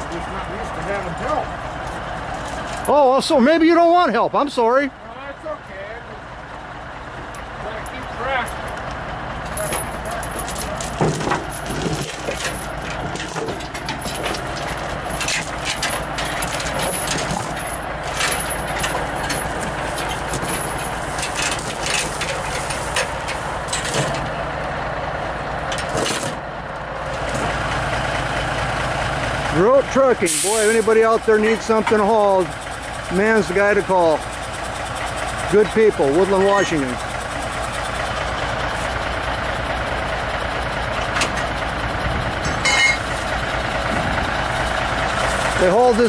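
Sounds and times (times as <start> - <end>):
diesel truck idling: 0.0 - 46.0
chains clinking and rattling: 0.5 - 1.5, 2.3 - 3.3, 7.7 - 8.8, 9.4 - 24.3, 25.6 - 26.4, 27.0 - 27.6, 42.4 - 43.1.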